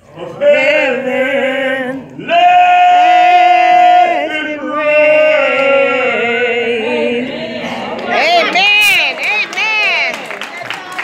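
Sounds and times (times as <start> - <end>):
man singing long notes: 0.0 - 7.6.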